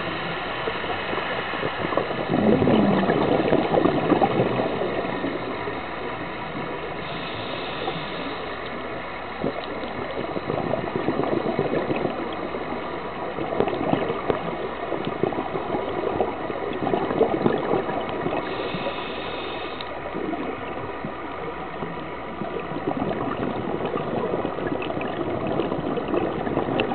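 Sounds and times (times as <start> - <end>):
bubbles gurgling: 0.0 - 26.9
scuba regulator breathing: 7.0 - 8.7, 18.4 - 20.1.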